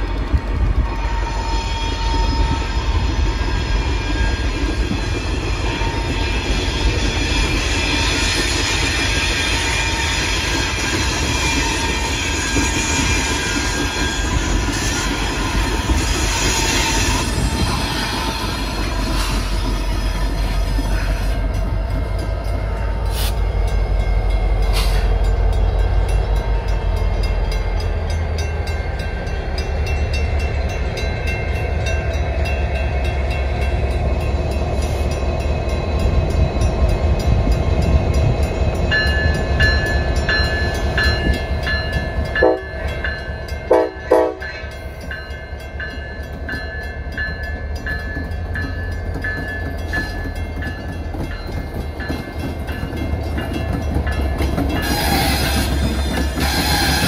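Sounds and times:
diesel locomotives rumbling: 0.0 - 57.0
crossing bell ringing: 16.6 - 56.1
train air horn blasts: 42.4 - 42.7, 43.7 - 44.5.

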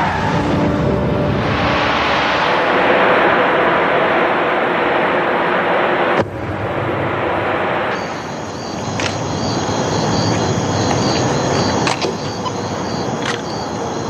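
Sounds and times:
crickets chirping: 7.9 - 14.0.

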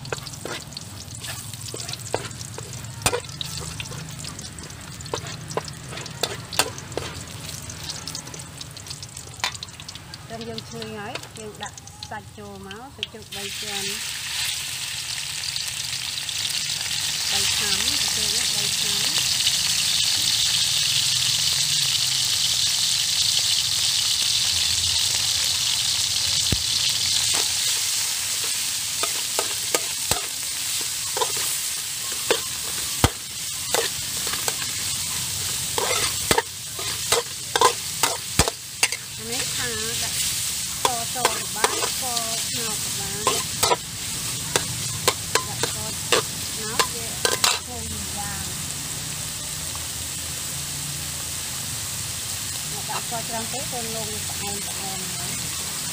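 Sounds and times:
metal spatula scraping wok: 0.0 - 8.4, 27.1 - 47.8
meat sizzling in a wok: 0.0 - 55.9.

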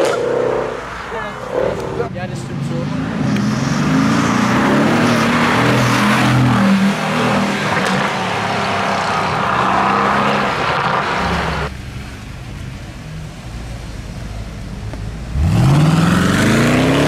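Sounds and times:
car engine accelerating hard: 15.3 - 17.0.

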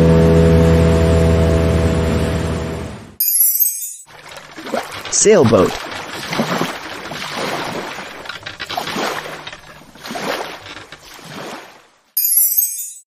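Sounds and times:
water splashing along boat hull: 4.1 - 12.2.

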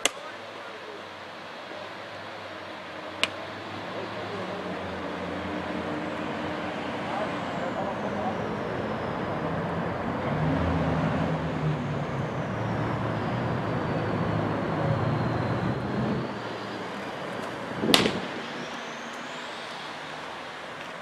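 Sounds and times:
road traffic rumble: 0.0 - 21.0
baseball smacking into mitt: 17.9 - 18.3.

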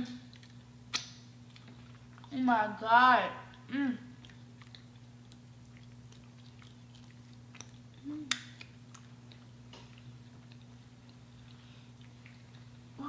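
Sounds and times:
steady low hum: 0.0 - 13.0
person chewing: 0.2 - 2.3, 3.5 - 13.0
person humming: 3.7 - 4.1, 8.0 - 8.4.

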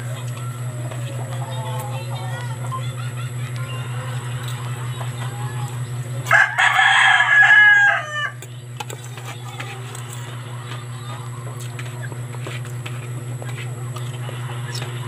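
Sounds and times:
steady low hum: 0.0 - 15.0
rooster crowing: 6.2 - 8.4.

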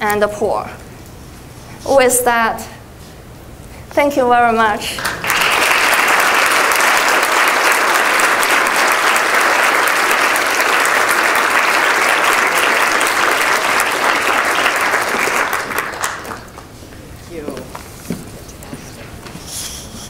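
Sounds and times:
audience applauding: 5.0 - 16.8.

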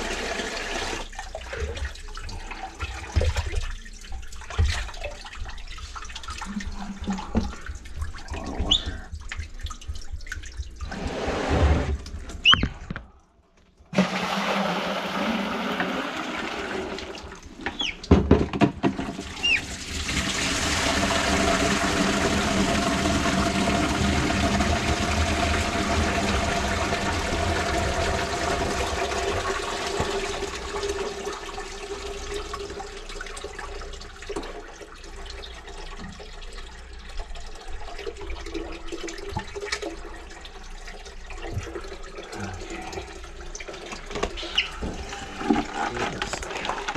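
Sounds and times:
running water rushing: 0.0 - 13.0, 19.2 - 31.4, 41.4 - 46.9.

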